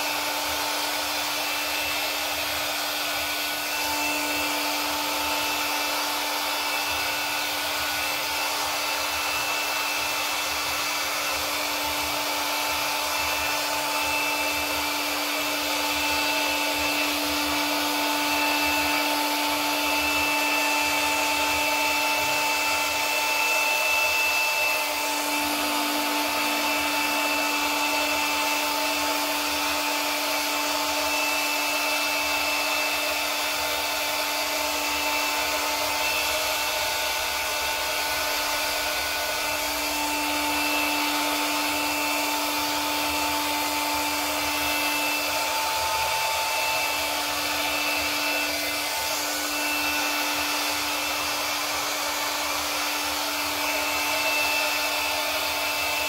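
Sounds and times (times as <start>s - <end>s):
electric blower motor whine: 0.0s - 56.0s.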